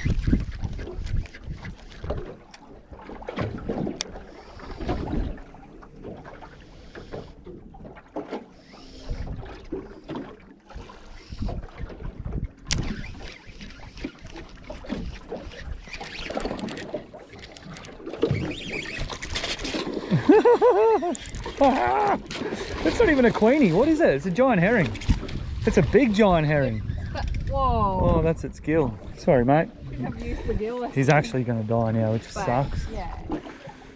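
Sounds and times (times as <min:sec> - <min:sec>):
wind gusting over microphone: 0:00.0 - 0:02.3, 0:22.2 - 0:33.4
waves slapping boat hull: 0:00.0 - 0:33.9.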